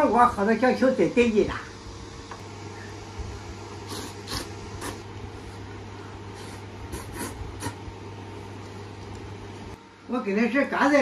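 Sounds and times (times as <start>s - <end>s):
steady low hum: 0.0s - 11.0s
slurping and chewing: 3.9s - 5.0s.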